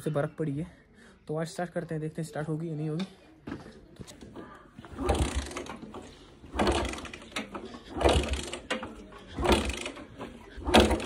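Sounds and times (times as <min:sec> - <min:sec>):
motorcycle kick-start clatter: 0:04.9 - 0:11.0.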